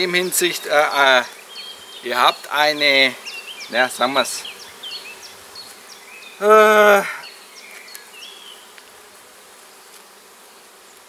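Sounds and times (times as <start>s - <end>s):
bees buzzing: 0.0s - 11.0s
loud bee buzz passing close: 0.0s - 11.0s.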